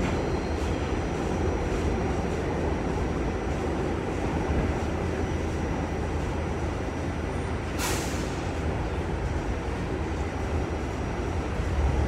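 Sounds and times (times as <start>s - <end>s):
subway car rumbling on rails: 0.0s - 12.0s
short hiss: 7.8s - 8.4s.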